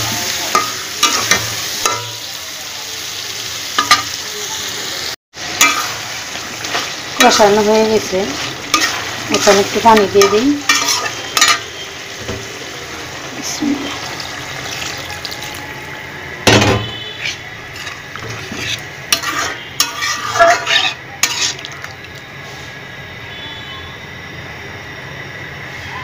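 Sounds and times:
steady sizzle: 0.0 - 25.6
metal spatula scraping a pan: 5.6 - 11.8, 16.9 - 21.9
water poured into hot pan: 13.4 - 15.7, 21.3 - 22.3.

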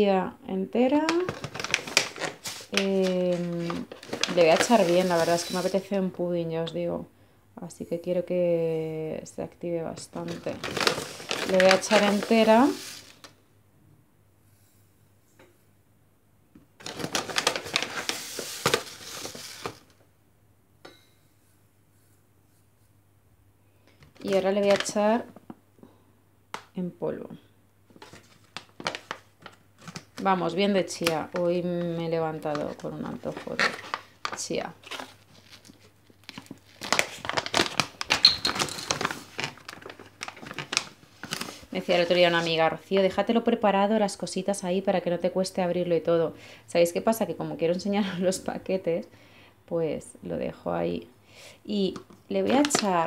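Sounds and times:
seeds clicking and rattling in packet: 1.0 - 5.8, 10.2 - 13.3, 16.8 - 19.9, 24.1 - 25.2, 30.9 - 42.4, 52.4 - 53.0
plastic bag crinkling: 1.0 - 5.9, 10.0 - 13.4, 16.8 - 20.0, 24.1 - 25.3, 27.9 - 42.7, 52.4 - 53.0.

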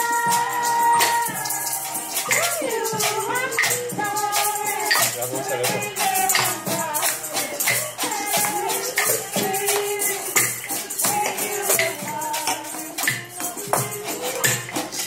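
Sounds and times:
group singing: 0.0 - 15.0
maracas and shaker shaking: 0.0 - 15.0.

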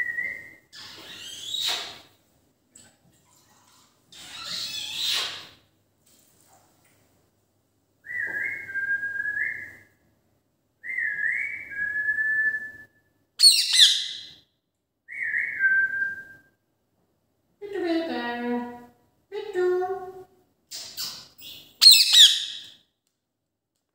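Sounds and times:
parakeet whistling: 13.4 - 14.3, 21.0 - 22.7.

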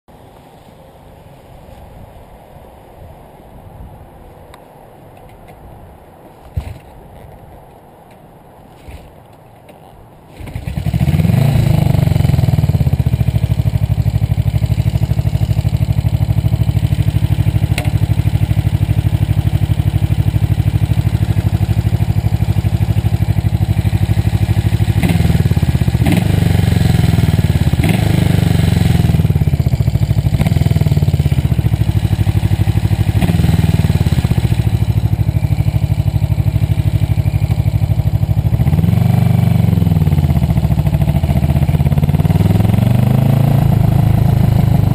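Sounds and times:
motorcycle engine revving: 10.3 - 44.9.

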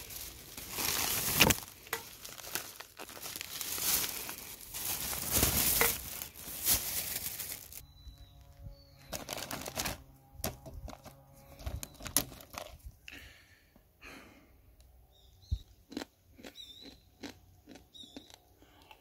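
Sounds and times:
crinkling and rustling handling: 0.0 - 13.0.

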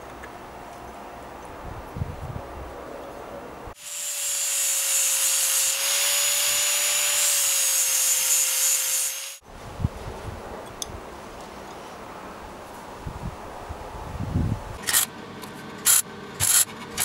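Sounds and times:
angle grinder grinding metal: 3.8 - 9.4.

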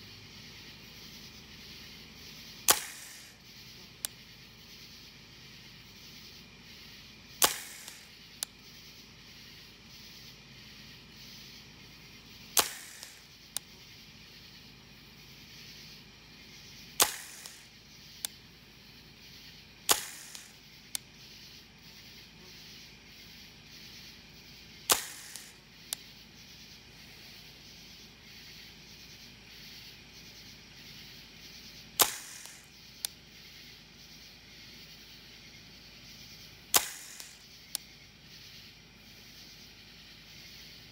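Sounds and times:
airsoft rifle shots: 2.6 - 3.4, 7.4 - 8.5, 12.5 - 13.4, 16.9 - 17.8, 19.9 - 20.6, 24.9 - 25.7, 32.0 - 32.8, 36.7 - 37.6.

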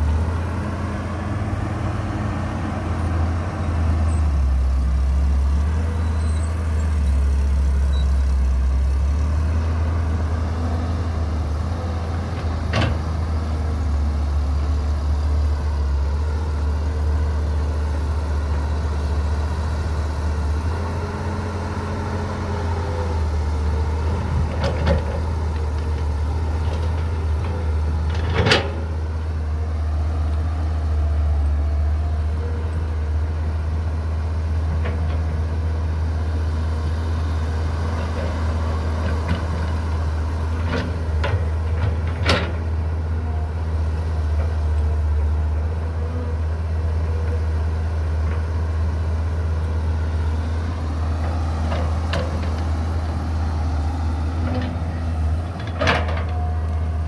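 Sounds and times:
dump truck engine: 0.0 - 57.0
excavator diesel drone: 0.0 - 57.0.

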